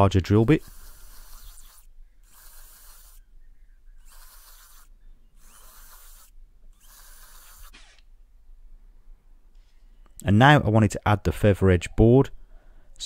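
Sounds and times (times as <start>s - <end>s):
cordless drill boring wood: 0.3s - 3.2s, 4.0s - 8.0s.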